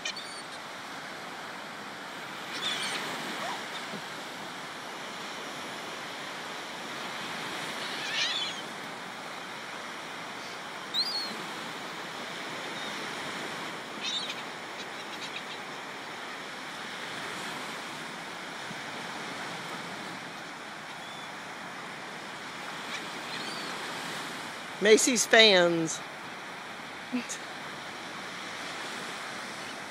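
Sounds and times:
surf washing onto beach: 0.0s - 29.9s
gull calls: 2.5s - 4.0s, 7.8s - 8.7s, 14.0s - 15.7s.

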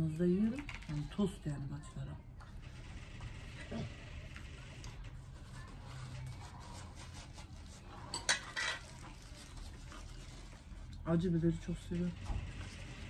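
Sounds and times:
dishes clinking on a tray: 8.1s - 9.0s.

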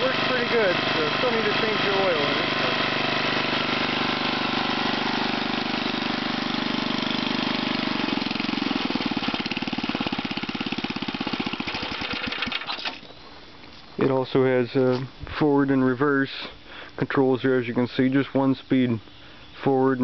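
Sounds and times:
rototiller engine running: 0.0s - 13.0s.

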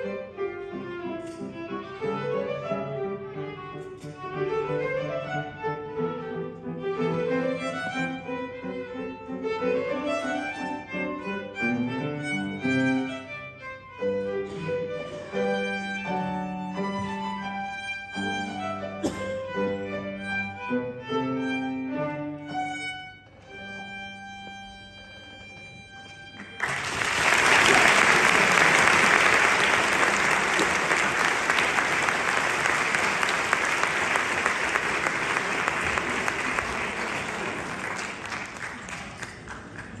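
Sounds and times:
violin with piano: 0.0s - 26.6s
audience applause: 26.4s - 40.0s.

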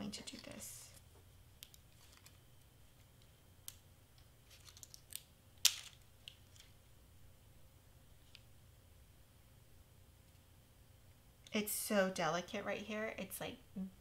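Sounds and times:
small clicks and crackles: 1.6s - 2.4s, 3.0s - 6.8s.

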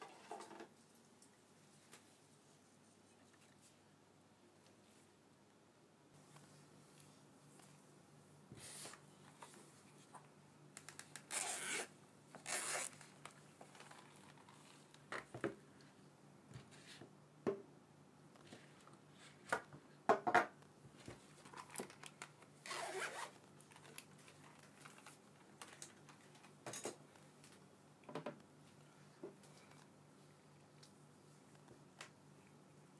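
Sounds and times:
zipper being pulled: 11.2s - 13.0s, 22.6s - 23.4s.

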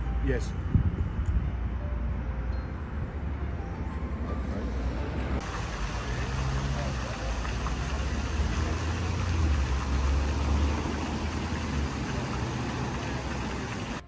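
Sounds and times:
road traffic rumble: 0.0s - 14.0s
fountain jets splashing: 5.4s - 14.0s.

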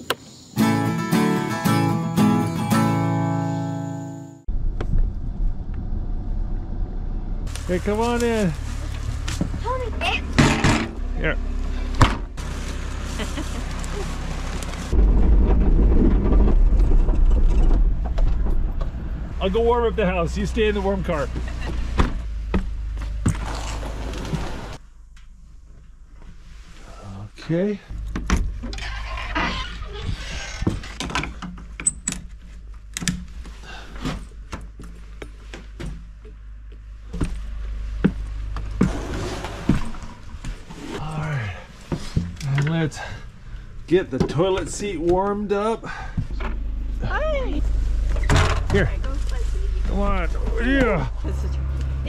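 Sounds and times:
vehicle engine idling: 4.5s - 15.0s, 18.6s - 27.3s, 41.2s - 52.0s
vehicle driving over rough track: 4.5s - 25.2s, 37.0s - 52.0s
steady low hum: 4.5s - 29.9s, 31.6s - 52.0s.

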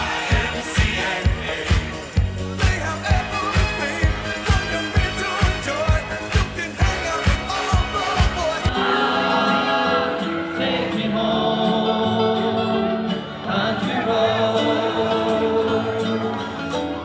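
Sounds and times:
thumping dance beat: 0.0s - 8.7s
slow song with choir-like vocals: 0.0s - 16.9s.

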